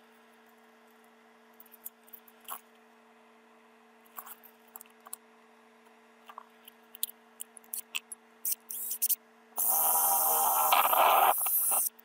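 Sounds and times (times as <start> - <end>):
cordless drill drilling into wood: 9.6 - 11.8.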